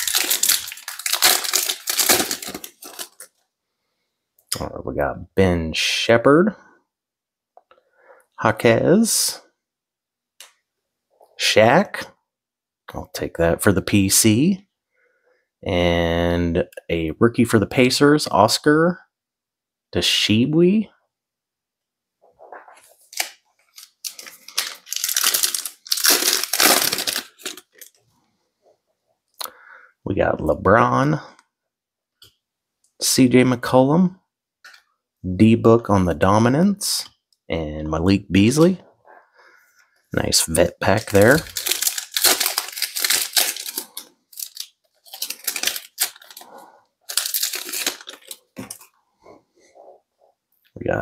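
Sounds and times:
wrapper tearing and crinkling: 0.0s - 3.3s, 23.0s - 28.0s, 40.4s - 49.0s.

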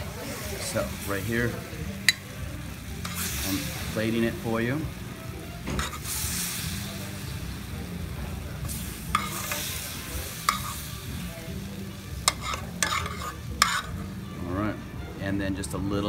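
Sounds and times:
sauce sizzling in a pan: 0.0s - 15.0s
metal spoon clicking on pan: 2.0s - 2.3s, 9.1s - 9.7s, 10.5s - 10.8s, 12.2s - 13.9s.

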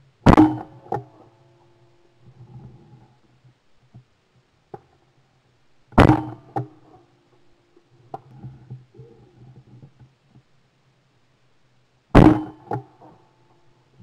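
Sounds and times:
shotgun shot: 6.0s - 6.4s, 12.2s - 12.8s.

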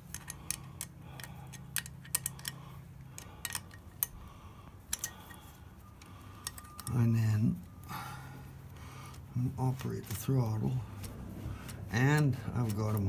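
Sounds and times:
small metallic clicks and taps: 0.0s - 4.2s, 4.9s - 7.0s
faint low hum: 0.0s - 13.0s.

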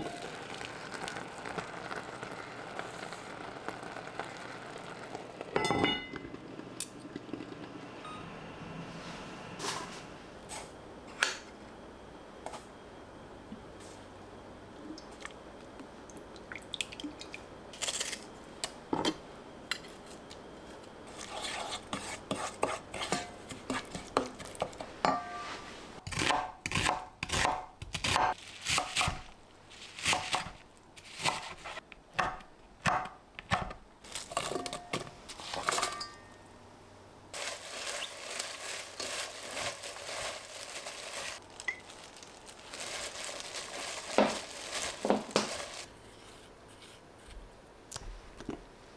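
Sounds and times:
utensils and dishes clinking: 5.6s - 6.4s, 34.4s - 36.4s
rustling: 37.3s - 47.3s.

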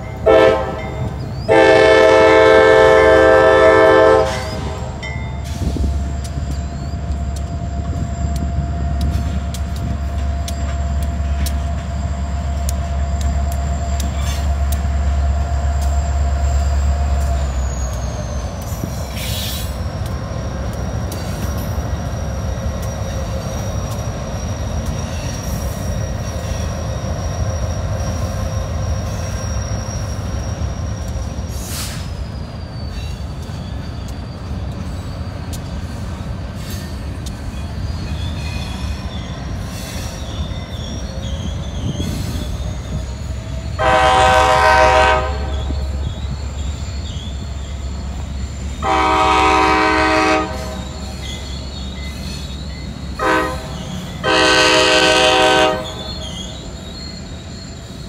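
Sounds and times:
diesel locomotive engine rumbling: 0.0s - 58.0s
locomotive air horn blasts: 0.2s - 5.0s, 43.8s - 45.8s, 48.8s - 50.9s, 53.2s - 56.1s.

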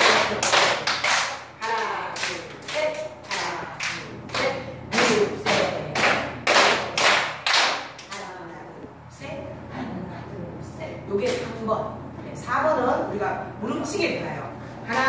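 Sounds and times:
people clapping in rhythm: 0.0s - 8.3s
woman calling out: 1.6s - 5.9s.

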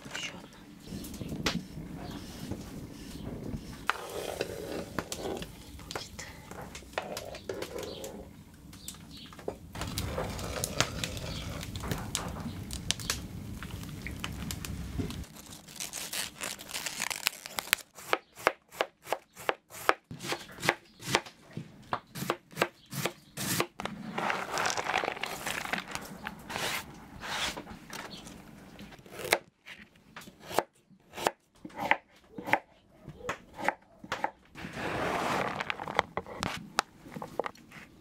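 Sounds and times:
cabbage leaves tearing: 9.8s - 18.0s
shredded cabbage rustling: 13.5s - 17.9s, 23.4s - 27.6s, 34.6s - 36.0s.

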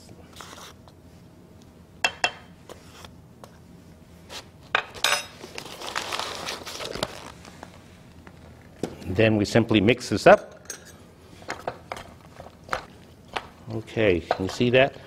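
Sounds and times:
paper rustling: 5.4s - 7.8s.

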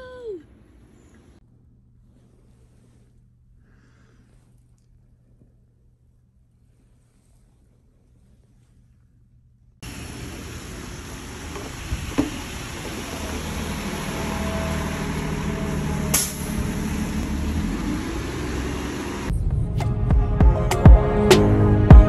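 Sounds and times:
tyres hissing on wet road: 9.8s - 19.3s
bus engine running: 9.8s - 20.1s.

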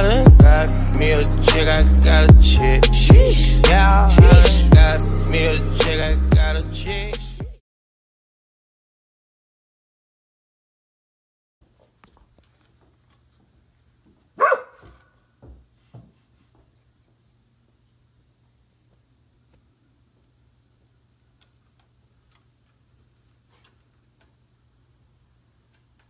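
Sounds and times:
dog barking: 14.4s - 15.1s.

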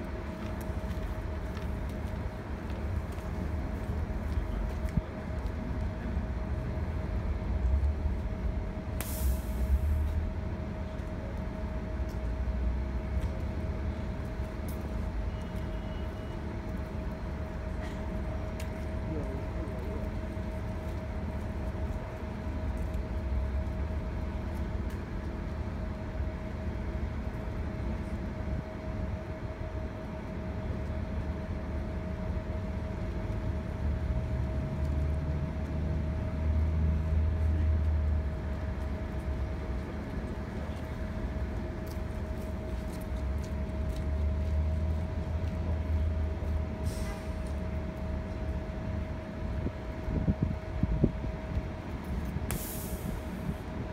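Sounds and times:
bus engine idling: 0.0s - 53.9s.

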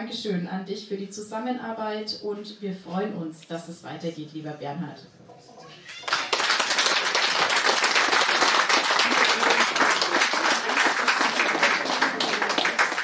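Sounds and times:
crowd applauding: 5.9s - 13.0s.

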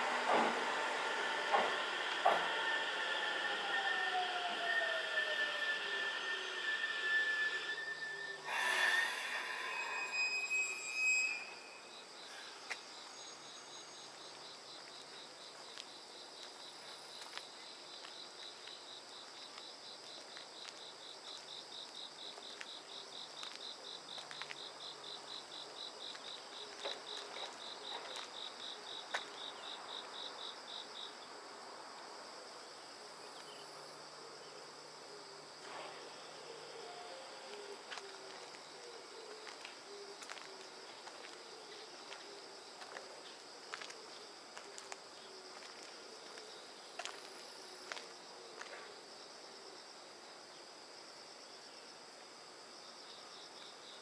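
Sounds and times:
electric train braking whine: 0.0s - 14.1s
insect chirping in pulses: 0.6s - 52.0s
air hiss: 5.9s - 11.6s.

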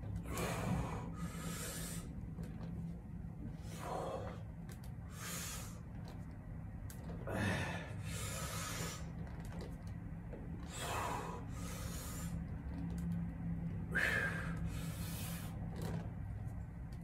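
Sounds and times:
steady low hum: 0.0s - 17.0s
man breathing hard: 0.2s - 2.2s, 3.5s - 5.9s, 7.2s - 9.1s, 10.7s - 12.4s, 13.8s - 15.6s.

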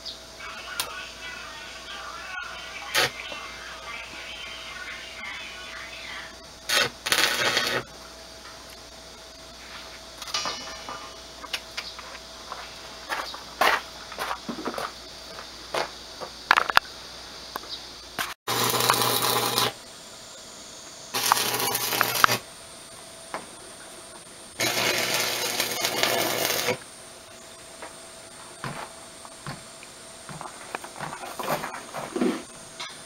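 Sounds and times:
electric arc welding: 1.6s - 3.6s, 5.1s - 7.9s, 18.2s - 19.8s, 21.1s - 22.5s, 24.6s - 26.9s.

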